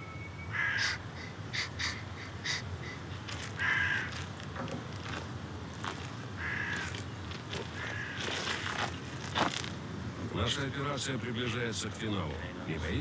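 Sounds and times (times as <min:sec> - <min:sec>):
crows cawing: 0:00.5 - 0:04.5, 0:05.9 - 0:08.9.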